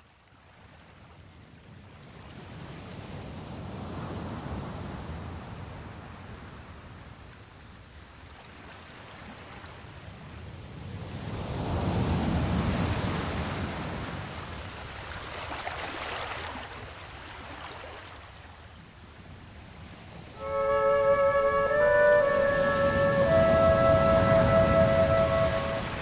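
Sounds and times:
rushing noise: 0:20.4 - 0:26.0.

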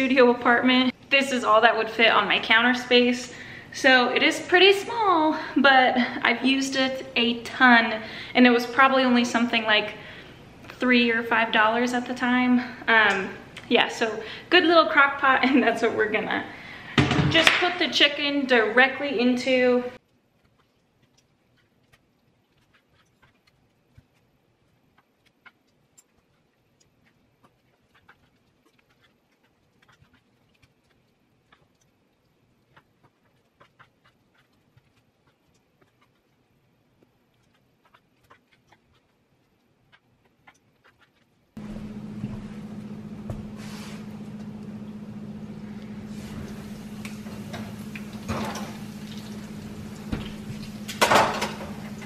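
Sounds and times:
steady low hum: 0:41.5 - 0:52.0
oven door opening: 0:46.1 - 0:49.0
tray clattering: 0:47.2 - 0:48.8, 0:50.1 - 0:52.0.

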